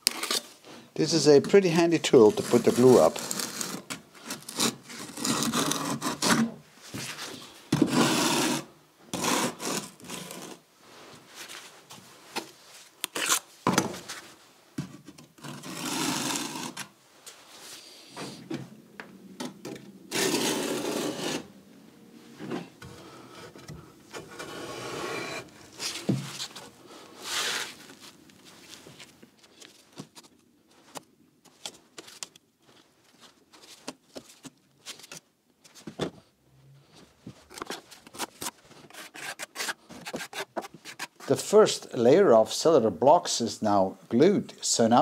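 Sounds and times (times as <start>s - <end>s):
glue applicator scraping concrete blocks: 2.3s - 6.5s, 7.8s - 10.6s, 20.1s - 21.5s.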